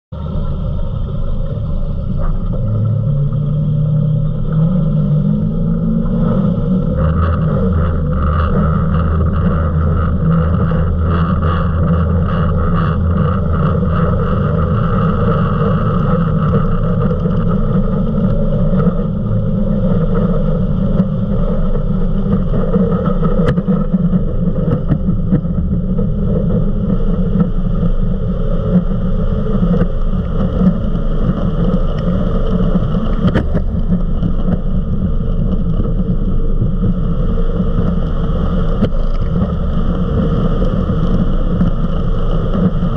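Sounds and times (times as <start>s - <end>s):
boat engine drone: 0.0s - 42.9s
wind: 0.0s - 42.9s
rushing water: 28.8s - 42.9s.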